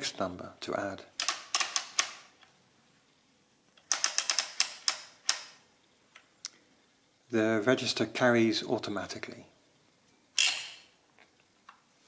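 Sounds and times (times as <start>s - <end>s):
adding machine ratcheting clicks: 1.2s - 2.2s, 3.8s - 5.6s.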